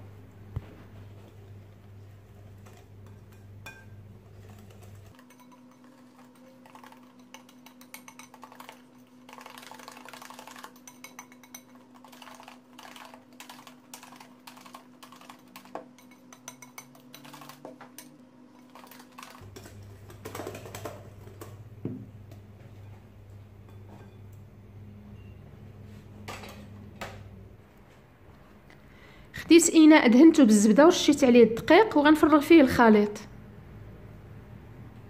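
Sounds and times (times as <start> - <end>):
whisk clicking against glass bowl: 4.6 - 18.1.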